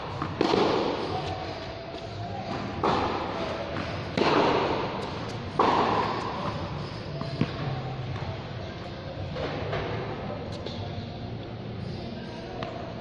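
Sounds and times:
tennis balls struck by rackets: 0.0s - 8.4s.

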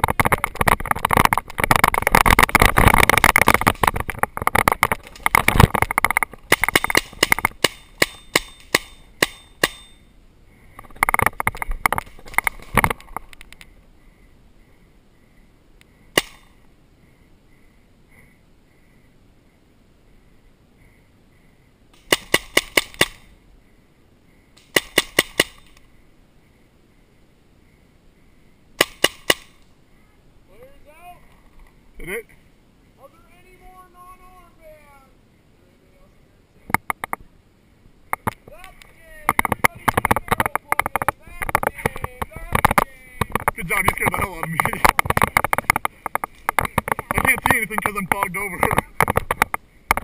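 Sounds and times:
brush rustling: 0.0s - 14.0s, 38.4s - 50.0s
paintball marker popping: 0.1s - 9.8s, 39.3s - 48.0s
paintball marker shots: 6.5s - 10.0s, 16.1s - 16.6s, 22.0s - 23.3s, 24.6s - 25.8s, 28.8s - 29.6s.

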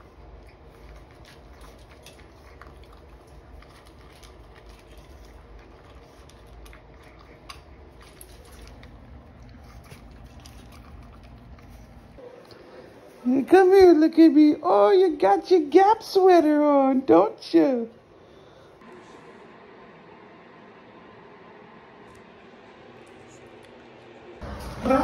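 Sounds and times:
dog crunching dry kibble: 0.1s - 12.2s.

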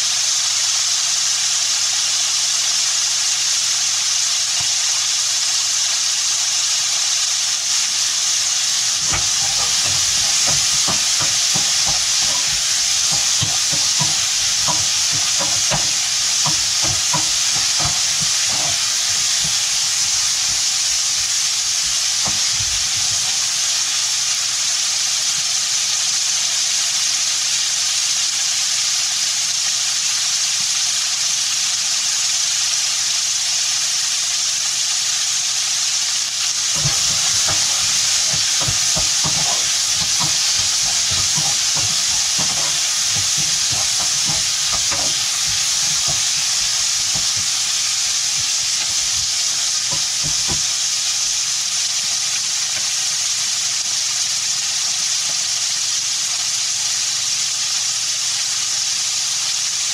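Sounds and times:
food sizzling in a wok: 0.0s - 59.9s
spatula knocking against wok: 8.8s - 23.6s, 36.4s - 51.1s.

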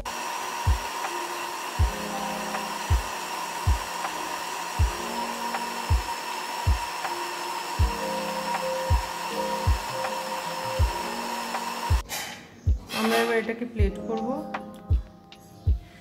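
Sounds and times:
electric mixer grinder blending: 0.0s - 12.0s
background music with deep beat: 0.7s - 1.2s, 1.8s - 4.2s, 4.8s - 13.1s, 13.8s - 16.0s.

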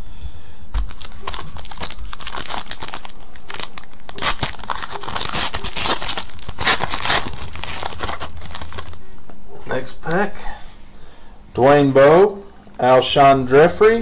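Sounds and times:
foil wrapper tearing and crinkling: 0.8s - 9.0s.

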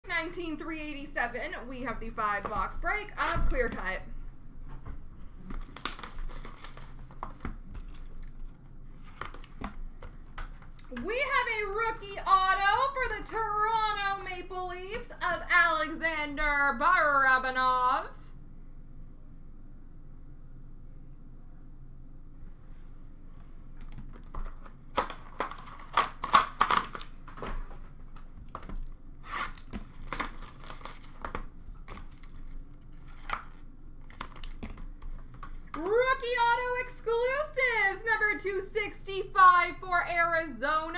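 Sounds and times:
wrapper crinkling and tearing: 5.5s - 9.8s, 23.8s - 27.5s, 28.2s - 35.8s.

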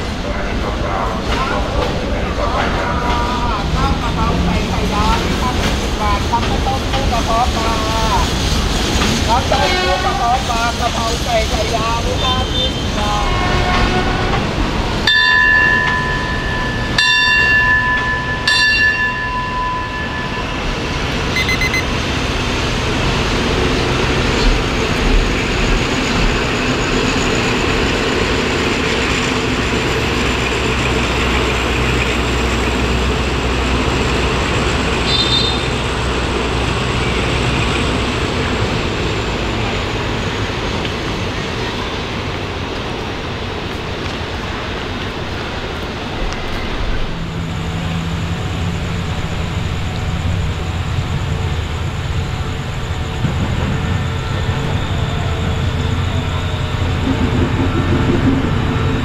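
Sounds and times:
train carriages rumbling past: 0.0s - 59.0s
train horn blasts: 9.5s - 10.4s, 12.5s - 14.6s, 35.0s - 35.9s
faint high whine: 19.1s - 22.0s.

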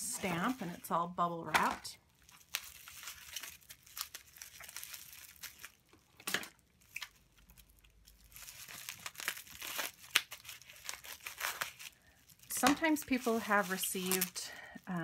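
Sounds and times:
bubble wrap crinkling: 0.0s - 15.0s
sharp crackle: 2.0s - 14.6s
scissors snipping bubble wrap: 8.4s - 14.4s.

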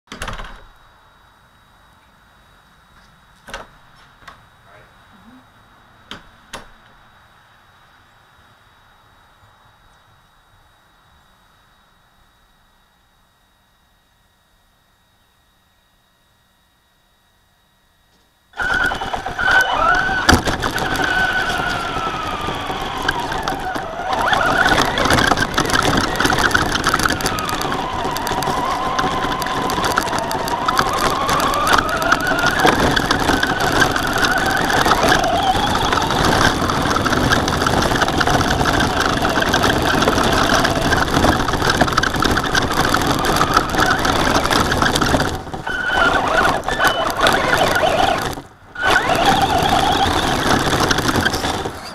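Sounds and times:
toy truck motor whining: 18.6s - 51.9s
tyres crunching on gravel: 18.6s - 51.9s.

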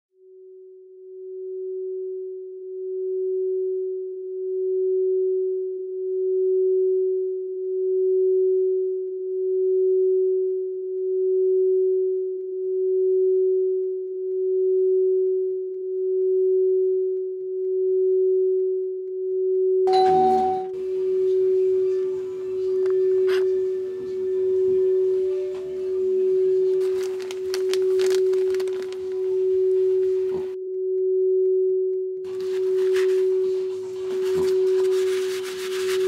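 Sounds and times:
steady pure tone: 19.9s - 31.1s, 32.0s - 36.0s.

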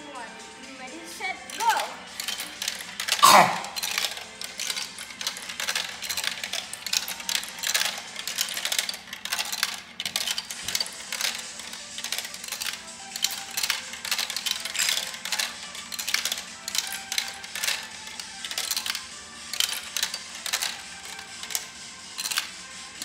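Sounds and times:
marbles clattering down plastic run: 1.3s - 23.0s.

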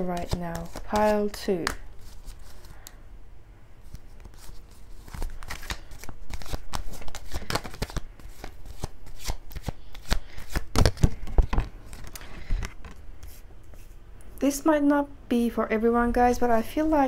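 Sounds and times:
cards being shuffled: 0.0s - 3.0s, 3.8s - 14.0s.

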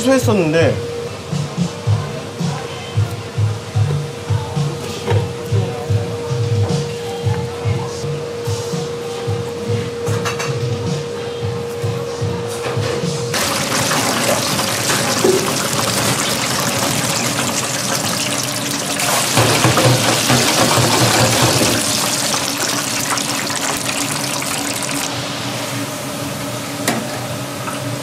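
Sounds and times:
running water rushing: 13.4s - 25.2s.

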